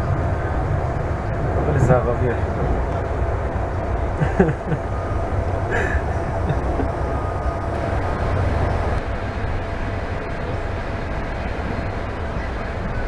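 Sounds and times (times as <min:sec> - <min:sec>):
train running rumble from inside: 0:00.0 - 0:13.0.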